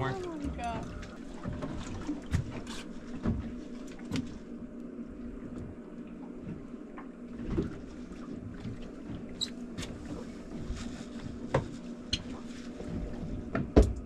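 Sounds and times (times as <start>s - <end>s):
outboard motor idling: 0.0s - 11.2s.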